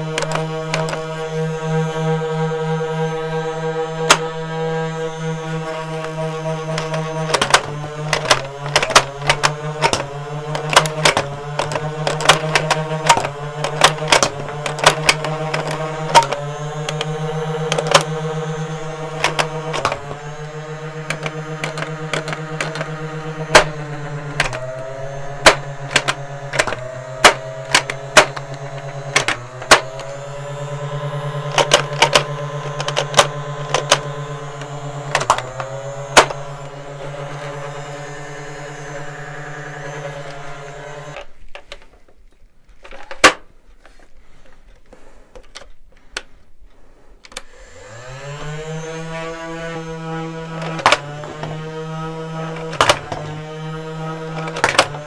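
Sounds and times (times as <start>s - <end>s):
toy gun plastic clicks: 0.0s - 37.6s, 39.8s - 43.5s, 50.5s - 51.7s, 52.4s - 55.0s
motor whirr: 0.0s - 41.4s, 47.3s - 55.0s.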